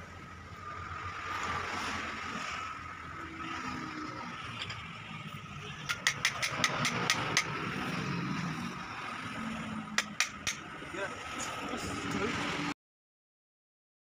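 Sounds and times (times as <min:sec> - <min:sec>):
engine-like hum: 0:00.0 - 0:12.8
sharp metallic clicks: 0:05.8 - 0:07.6, 0:10.0 - 0:10.6.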